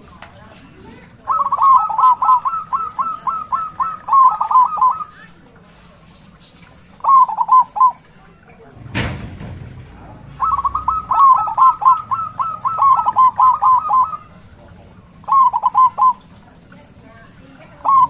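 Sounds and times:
dove cooing: 0.8 - 5.8, 6.9 - 8.2, 9.9 - 18.0
sharp thump: 8.8 - 10.1.

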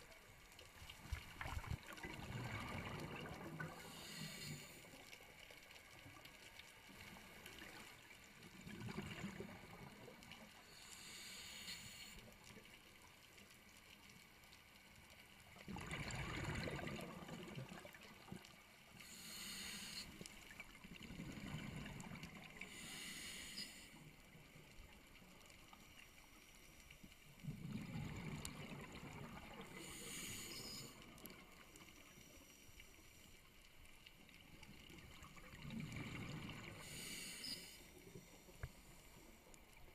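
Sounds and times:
exhaled air bubbling: 0.8 - 4.4, 15.6 - 18.4, 27.4 - 30.2, 35.0 - 37.0
regulator inhale hiss: 3.8 - 5.0, 10.6 - 12.3, 19.0 - 20.4, 22.6 - 24.0, 29.8 - 31.1, 36.8 - 39.3.

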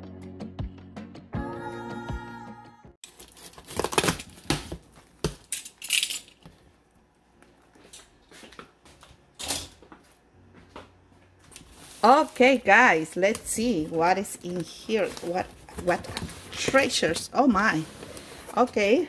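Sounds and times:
background music: 0.0 - 3.0
paper rustling: 11.5 - 18.9.

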